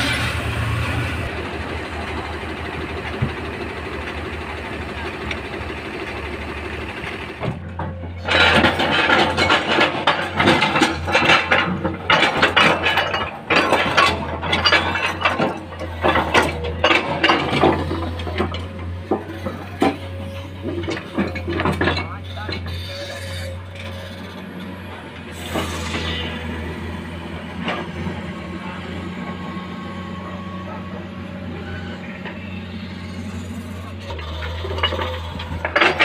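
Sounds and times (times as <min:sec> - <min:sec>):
truck engine hum: 0:00.0 - 0:36.0
rocks clattering into steel truck body: 0:07.6 - 0:22.7, 0:34.7 - 0:36.0.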